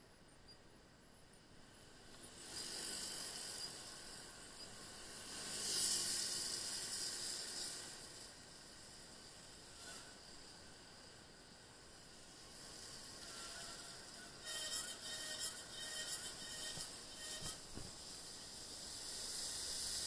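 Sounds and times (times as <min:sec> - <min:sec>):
tyres hissing on wet road: 0:01.5 - 0:20.0.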